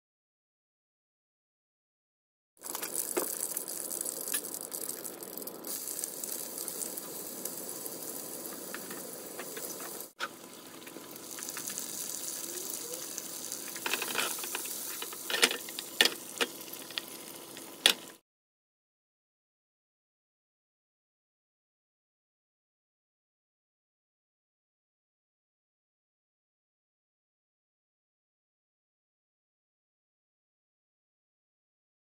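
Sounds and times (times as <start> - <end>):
oil sizzling in frying pan: 2.6 - 18.2.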